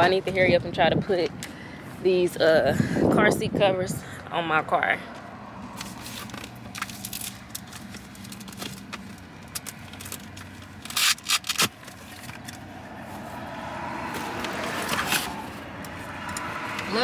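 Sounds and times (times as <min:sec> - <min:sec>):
car passing by: 0:12.6 - 0:17.0.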